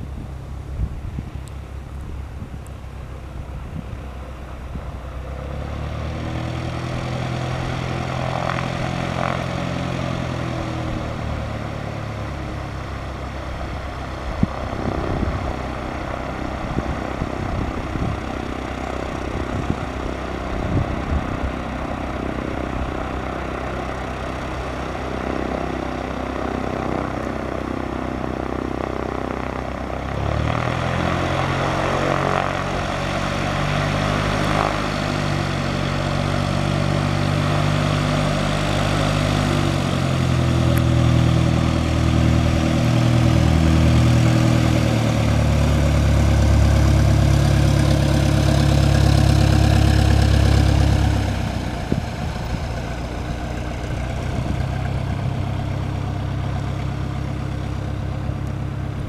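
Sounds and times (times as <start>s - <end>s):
airplane engine and propeller: 0.0s - 59.0s.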